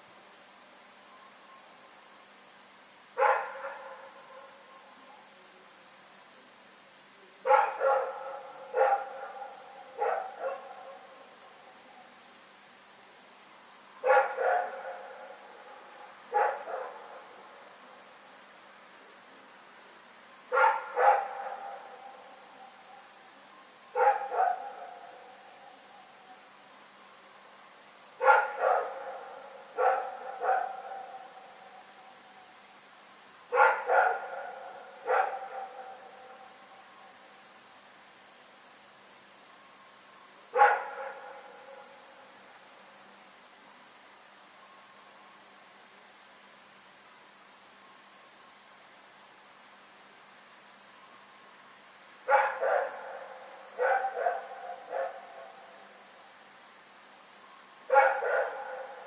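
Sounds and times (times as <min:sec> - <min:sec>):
dog barking: 0:03.2 - 0:04.6, 0:07.4 - 0:11.1, 0:14.0 - 0:15.3, 0:16.3 - 0:17.3, 0:20.5 - 0:22.2, 0:24.0 - 0:25.1, 0:28.2 - 0:31.3, 0:33.5 - 0:36.1, 0:40.6 - 0:41.4, 0:52.3 - 0:55.5, 0:57.9 - 0:59.0.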